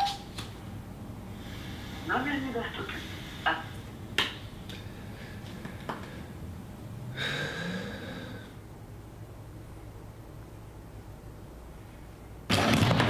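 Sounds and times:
man breathing heavily and sighing: 7.0 - 8.6.

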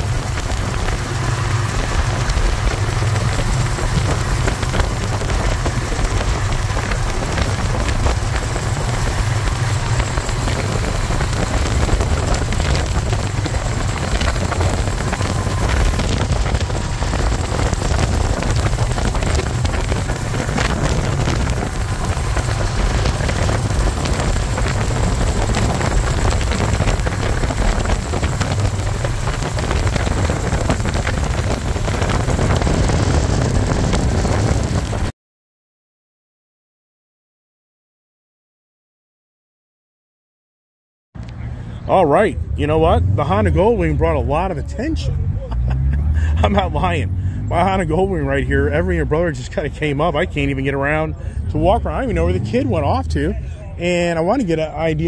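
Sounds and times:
road and engine rumble: 0.0 - 35.1, 41.2 - 55.0
wind rushing over microphone: 0.0 - 35.1.

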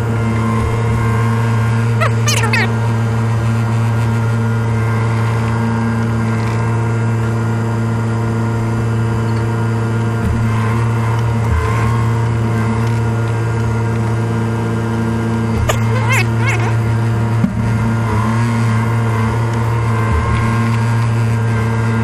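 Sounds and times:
short squeak: 2.0 - 2.7, 15.7 - 16.8.

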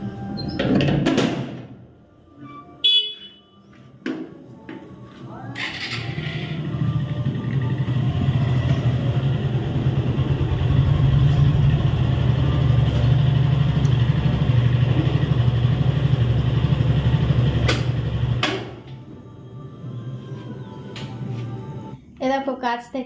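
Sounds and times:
motorcycle engine running: 6.0 - 18.9.

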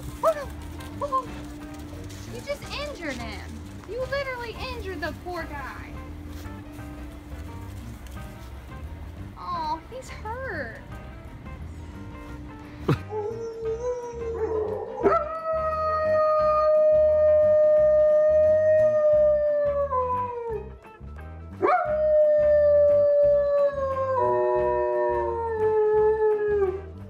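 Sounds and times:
background music with steady beat: 0.0 - 27.0
dog howling: 13.1 - 20.6, 21.6 - 26.8.

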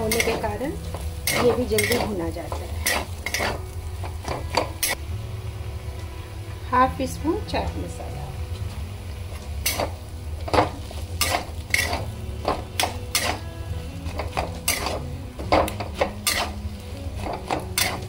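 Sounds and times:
metal spatula scraping a pan: 0.0 - 5.0, 9.4 - 18.0.

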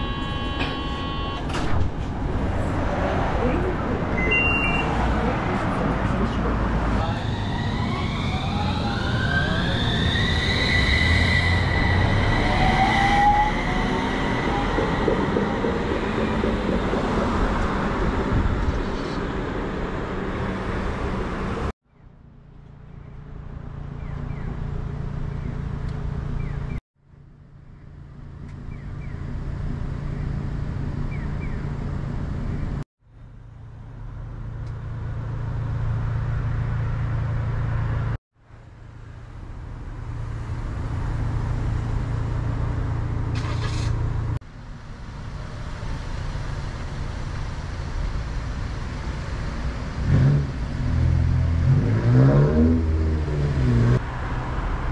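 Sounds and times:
tram electric drive whine: 7.2 - 20.8
tram running noise: 11.6 - 21.6.

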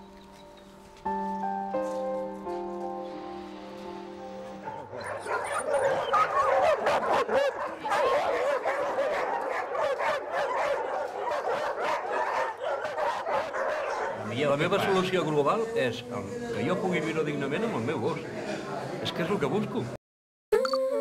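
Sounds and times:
soft music: 0.0 - 7.6, 10.2 - 19.9
dogs barking and yelping: 4.6 - 15.8.

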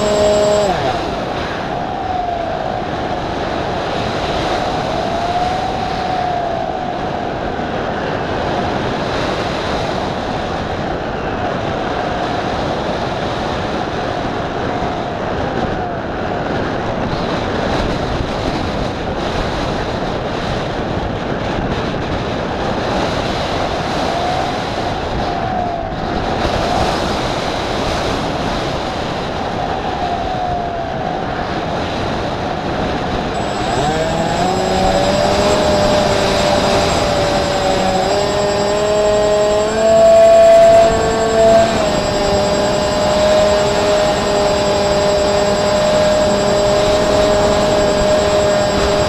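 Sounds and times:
faint electric motor whine: 0.0 - 3.0, 33.3 - 49.0
wind rushing over microphone: 0.0 - 49.0.

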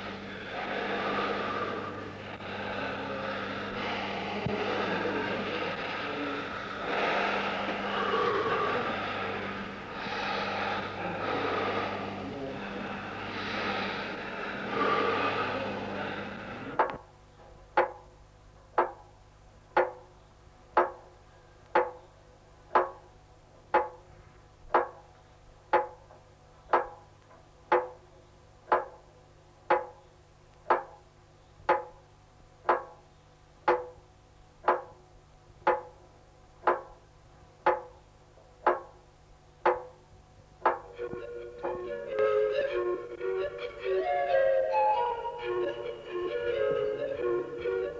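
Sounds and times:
clock ticking: 17.8 - 18.1, 18.8 - 19.1, 19.7 - 20.1, 20.7 - 21.1, 21.7 - 22.0, 22.7 - 23.1, 23.7 - 24.0, 24.7 - 25.0, 25.7 - 26.0, 26.7 - 27.0, 27.7 - 28.0, 28.7 - 29.1, 29.7 - 30.0, 30.6 - 31.0, 31.7 - 32.0, 32.6 - 33.0, 33.6 - 34.0, 34.6 - 35.0, 35.6 - 36.0, 36.6 - 37.0, 37.6 - 38.0, 38.6 - 39.0, 39.6 - 40.0, 40.6 - 40.9.

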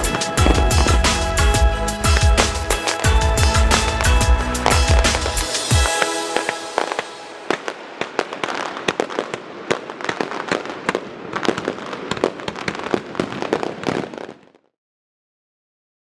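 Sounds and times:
steady hiss: 0.0 - 10.8
fireworks bangs and crackling pops: 0.0 - 14.7.

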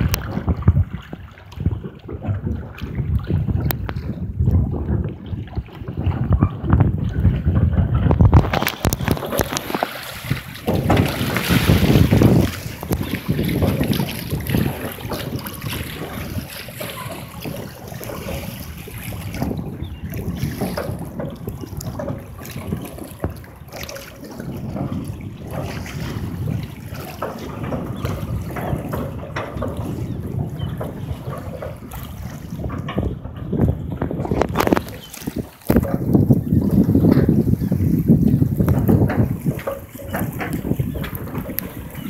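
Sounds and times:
choppy water splashing and lapping: 0.0 - 42.0
wind buffeting microphone: 0.0 - 42.0.

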